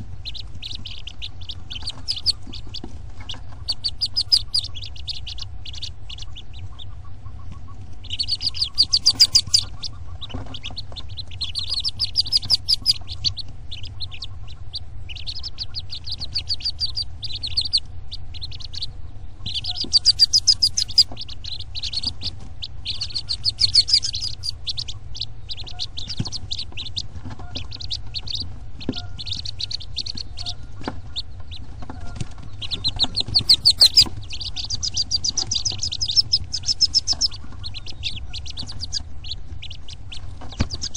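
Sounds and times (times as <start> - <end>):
bird chirping: 0.0 - 40.9
low rumble: 0.0 - 40.9.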